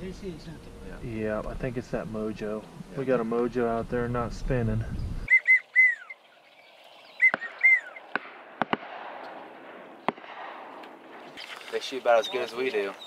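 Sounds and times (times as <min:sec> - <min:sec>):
downward-sliding whistled calls: 0:05.3 - 0:08.2, 0:11.4 - 0:13.0
distant shotguns firing: 0:07.2 - 0:11.8.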